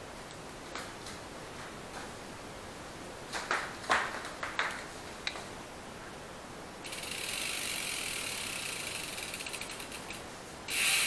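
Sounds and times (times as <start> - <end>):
bicycle freehub ratcheting: 6.8 - 11.0.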